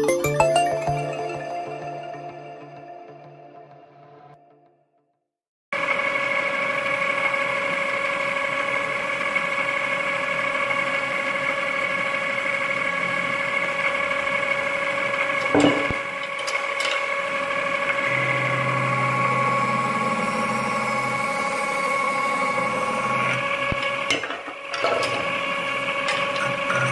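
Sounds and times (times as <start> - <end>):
lathe whining: 6.3 - 26.9.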